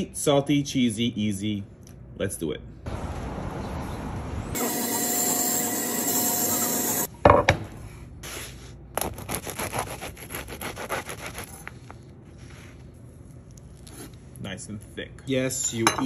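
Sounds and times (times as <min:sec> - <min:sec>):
knife sawing through bread: 0:08.2 - 0:12.8.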